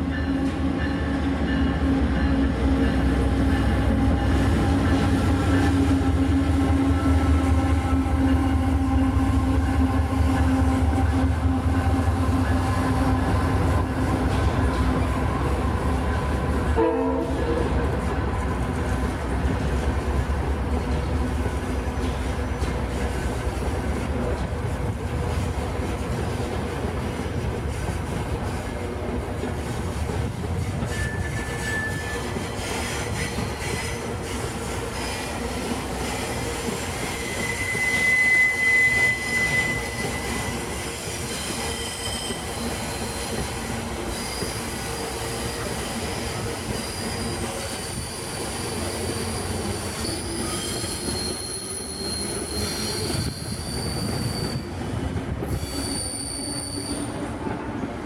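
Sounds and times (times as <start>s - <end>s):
train wheel squeal: 0.0s - 18.1s, 29.7s - 57.6s
train wheels rumbling over track: 0.0s - 58.0s.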